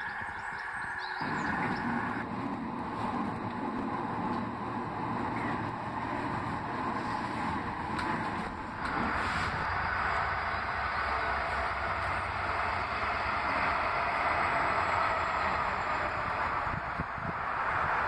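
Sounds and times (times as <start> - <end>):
train passing close: 0.0 - 18.0.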